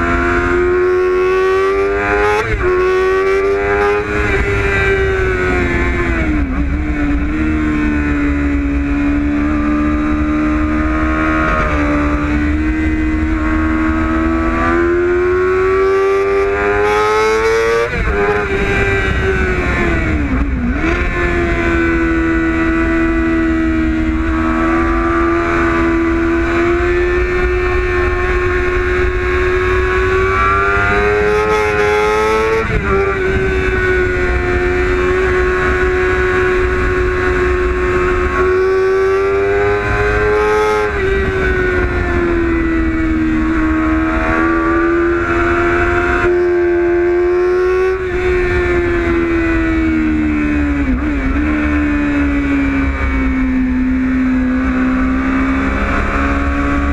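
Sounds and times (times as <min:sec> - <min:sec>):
motorcycle engine at high revs: 0:00.0 - 0:56.9.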